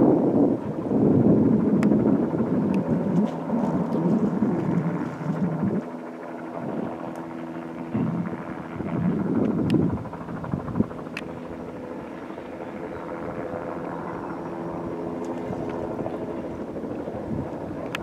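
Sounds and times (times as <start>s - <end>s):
distant helicopter drone: 0.0s - 18.0s
uneven rumble: 1.2s - 5.9s, 7.9s - 10.9s.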